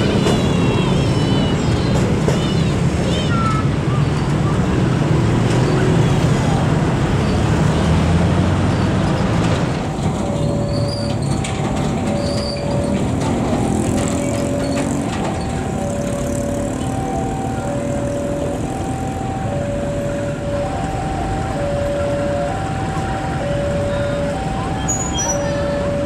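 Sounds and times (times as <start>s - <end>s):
diesel locomotive rumble: 0.0s - 26.0s
traffic rumble: 0.0s - 26.0s
level-crossing alarm two tones: 10.2s - 26.0s.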